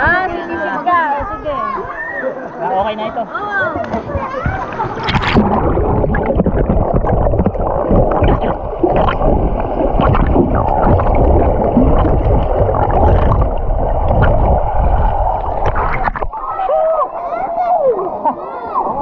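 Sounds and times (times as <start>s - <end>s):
short water splashes: 3.7s - 16.5s
stream water gurgling: 3.8s - 17.2s.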